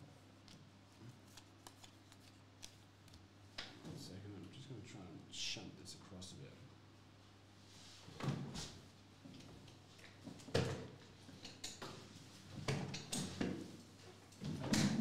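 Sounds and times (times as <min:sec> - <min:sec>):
cards rustling: 0:01.2 - 0:02.8.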